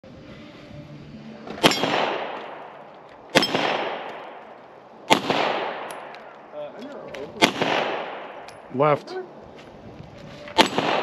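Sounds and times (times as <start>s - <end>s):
pistol shots with echo: 1.6s - 6.5s, 7.4s - 8.7s, 10.6s - 11.0s.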